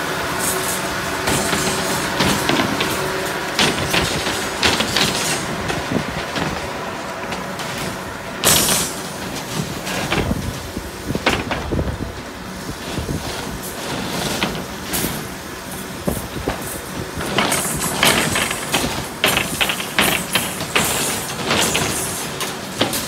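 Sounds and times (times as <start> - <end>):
steady mechanical background: 0.0 - 23.0
metal rebar clinks and clanks: 0.5 - 6.6, 7.3 - 10.6, 16.6 - 23.0.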